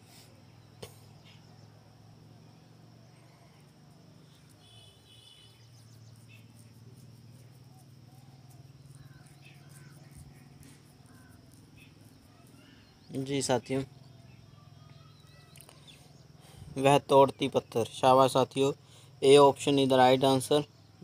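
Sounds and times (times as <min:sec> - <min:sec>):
short bird chirps: 0:00.0 - 0:01.7, 0:03.1 - 0:13.2, 0:13.8 - 0:16.7
high-pitched cricket chirring: 0:00.4 - 0:21.0.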